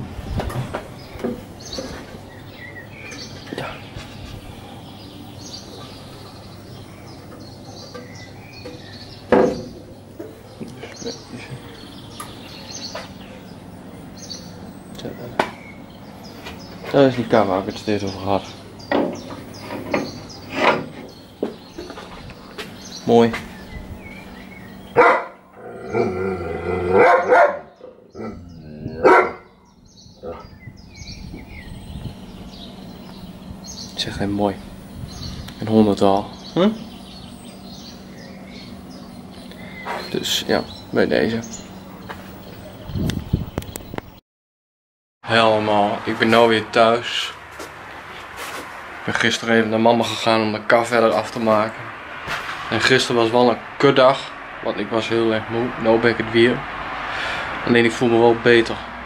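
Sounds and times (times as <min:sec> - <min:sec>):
outdoor background noise: 0:00.0 - 0:44.2, 0:45.2 - 0:59.0
small birds chirping: 0:00.0 - 0:44.2
knock of wooden cart: 0:09.3 - 0:09.8
dog barking: 0:25.0 - 0:25.4, 0:26.9 - 0:27.7, 0:29.0 - 0:29.5.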